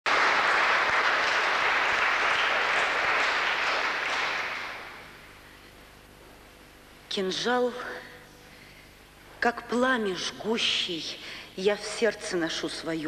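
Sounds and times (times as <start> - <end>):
audience applause: 0.0 - 5.0.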